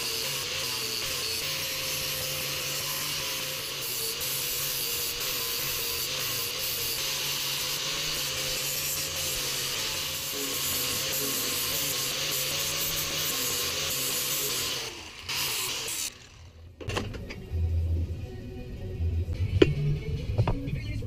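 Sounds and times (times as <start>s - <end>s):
angle grinder grinding metal: 0.0s - 16.8s.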